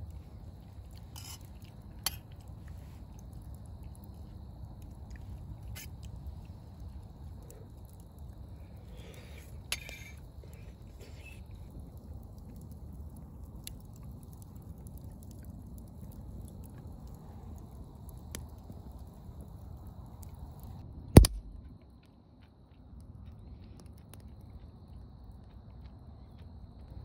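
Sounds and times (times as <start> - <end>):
wood fire crackling: 0.0 - 21.6
loud sharp knock: 21.2 - 21.4.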